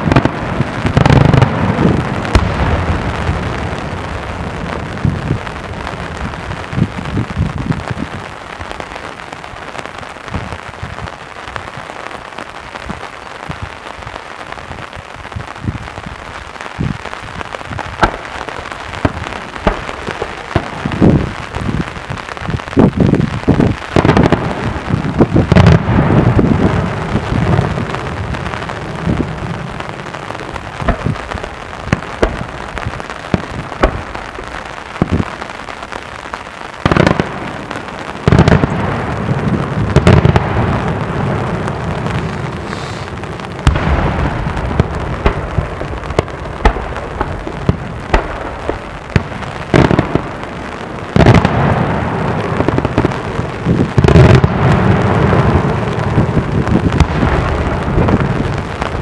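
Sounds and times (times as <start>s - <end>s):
fireworks crackling: 0.0s - 59.0s
firework shell bursts: 42.7s - 43.1s.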